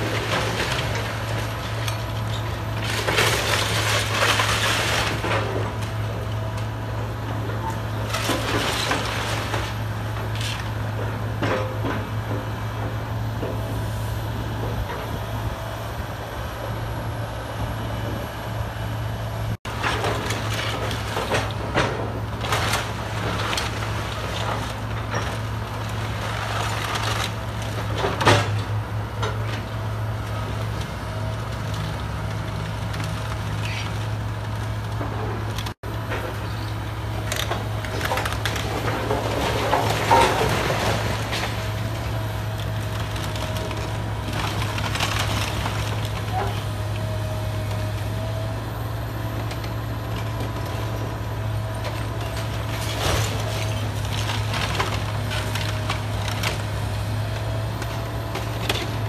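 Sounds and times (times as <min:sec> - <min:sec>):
excavator diesel engine running: 0:00.0 - 0:59.0
timber crunching and splintering: 0:51.5 - 0:59.0.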